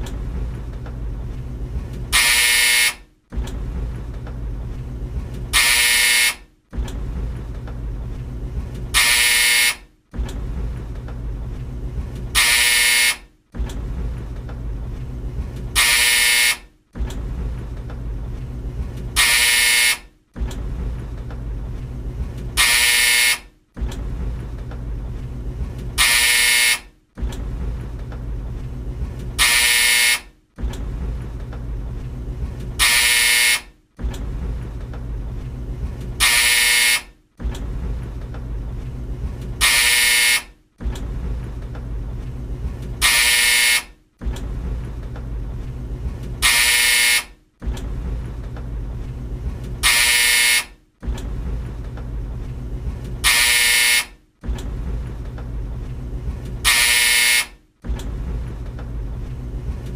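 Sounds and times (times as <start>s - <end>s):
tumble dryer drum rumbling: 0.0s - 2.5s, 3.1s - 46.7s, 47.4s - 53.4s, 54.2s - 56.8s, 57.6s - 59.9s
harsh dryer buzzer: 2.1s - 3.1s, 5.5s - 6.5s, 8.9s - 9.9s, 12.3s - 13.3s, 15.8s - 16.7s, 19.1s - 20.1s, 22.6s - 23.5s, 26.0s - 26.9s, 29.4s - 30.3s, 32.8s - 33.7s, 36.2s - 37.2s, 39.6s - 40.6s, 43.0s - 44.0s, 46.4s - 47.4s, 49.8s - 50.8s, 53.2s - 54.2s, 56.6s - 57.6s.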